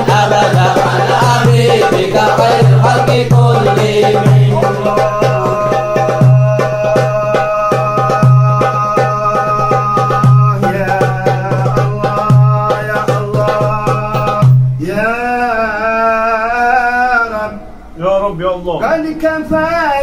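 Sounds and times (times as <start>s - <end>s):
hand-drum percussion: 0.0s - 14.8s
deep drum stroke: 0.0s - 14.9s
devotional music: 0.0s - 17.9s.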